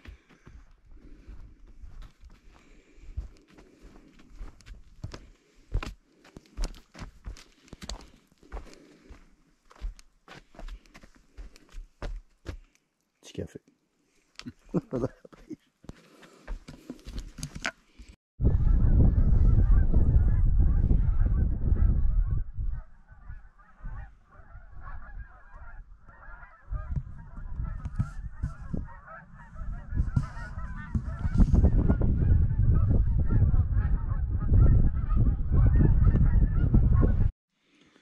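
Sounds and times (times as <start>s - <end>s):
low rumble on microphone: 18.4s - 25.0s, 26.7s - 37.3s
geese honking: 23.1s - 31.9s.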